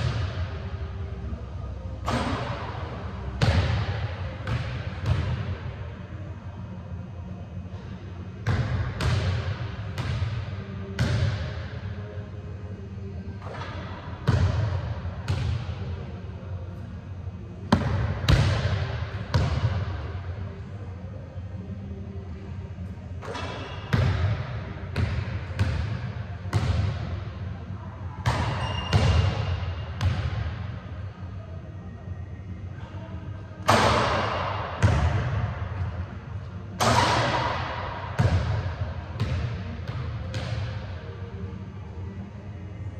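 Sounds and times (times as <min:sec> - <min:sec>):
low steady hum: 0:00.0 - 0:42.9.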